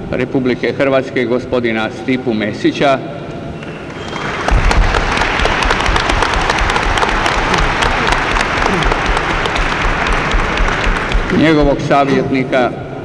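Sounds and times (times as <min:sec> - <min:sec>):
audience applauding: 0:03.6 - 0:11.8.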